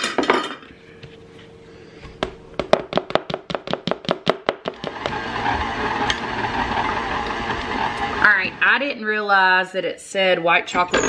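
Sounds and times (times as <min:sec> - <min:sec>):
stand mixer motor running: 0:04.7 - 0:08.7.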